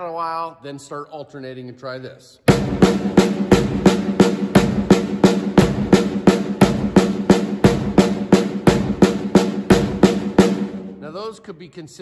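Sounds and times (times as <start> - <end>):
snare drum strokes: 2.5 - 11.0.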